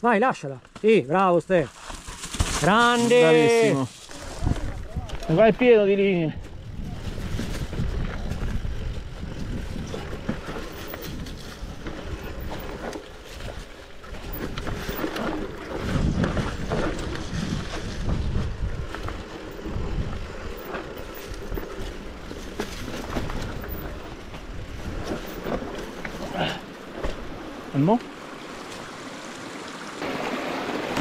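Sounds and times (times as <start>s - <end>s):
bike tyres crunching on dirt: 0.4s - 31.0s
wind on microphone: 4.1s - 5.6s, 6.2s - 26.4s
bike knocks and rattles: 6.4s - 27.4s.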